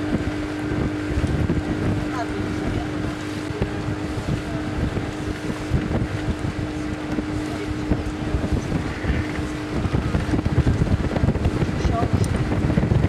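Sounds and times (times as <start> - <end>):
boat motor humming: 0.0 - 13.0
wind buffeting microphone: 0.0 - 13.0.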